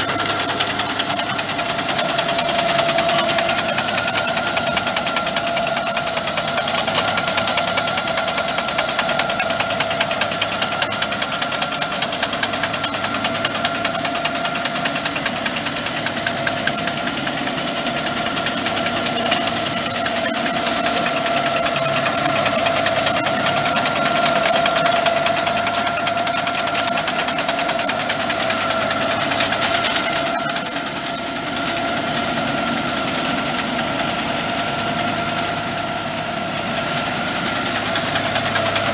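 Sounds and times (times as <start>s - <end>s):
high whine of clearing shear: 0.0s - 38.9s
tractor diesel engine running: 0.0s - 38.9s.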